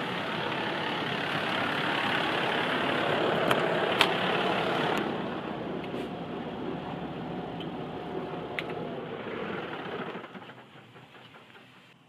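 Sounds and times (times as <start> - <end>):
fire engine pump running: 0.0 - 12.0.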